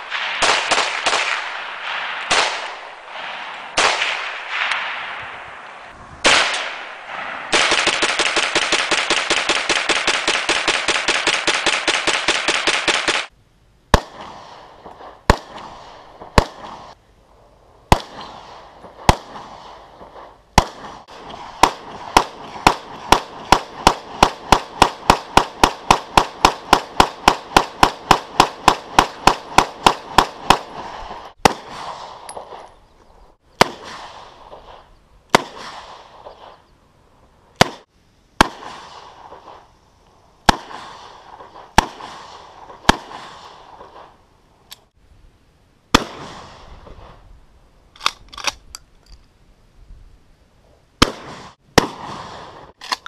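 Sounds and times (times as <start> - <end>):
pistol gunshots with echo: 0.0 - 5.4, 6.2 - 13.3, 13.9 - 17.0, 17.9 - 32.7, 33.6 - 36.6, 37.6 - 39.6, 40.4 - 44.2, 45.9 - 47.0, 51.0 - 52.8.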